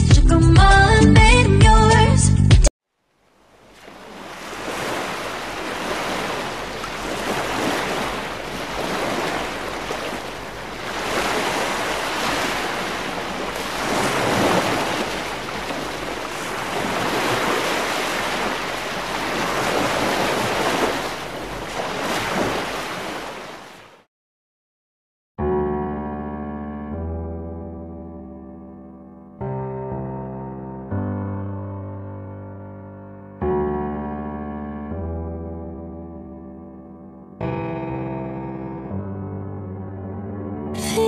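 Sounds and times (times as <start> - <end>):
ocean waves washing: 3.3 - 24.0.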